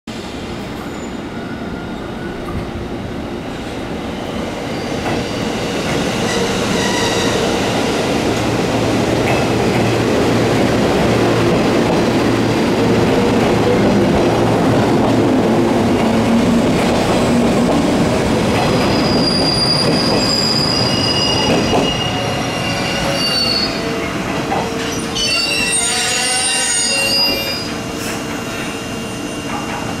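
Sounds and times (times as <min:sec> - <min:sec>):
train wheels on rails: 0:03.5 - 0:30.0.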